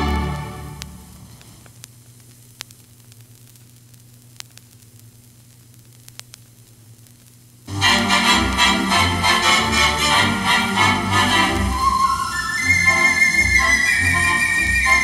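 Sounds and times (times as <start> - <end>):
theatre organ music: 0.0 - 0.9, 7.7 - 15.0
vinyl clicks and pops: 0.0 - 8.8
vinyl surface hiss: 0.0 - 15.0.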